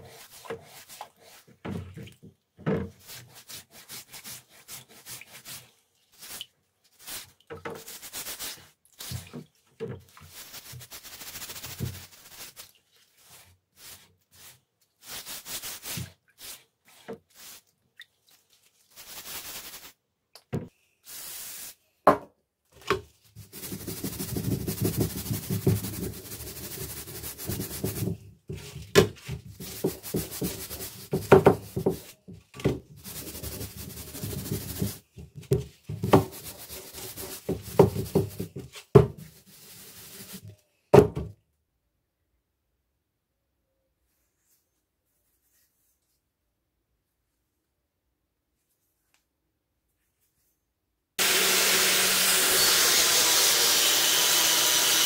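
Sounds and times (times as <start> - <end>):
rubbing on a metal tray: 7.0 - 9.2, 10.1 - 17.7, 23.4 - 32.2, 33.0 - 35.1, 35.8 - 40.5
scouring pad scrubbing metal: 23.4 - 28.8, 29.5 - 32.0, 33.0 - 35.1, 36.0 - 40.4.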